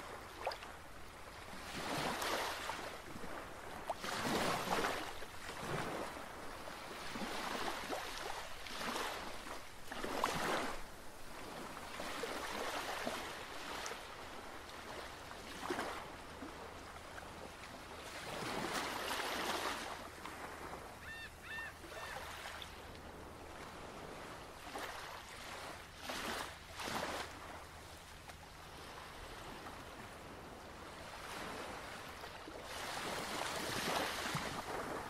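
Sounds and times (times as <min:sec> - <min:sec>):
short bird call: 0:21.0 - 0:22.3.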